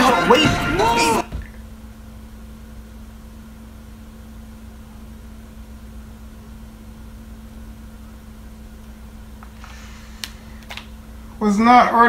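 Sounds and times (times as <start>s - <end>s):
constant low hum: 0.0s - 12.0s
even hiss: 9.4s - 12.0s.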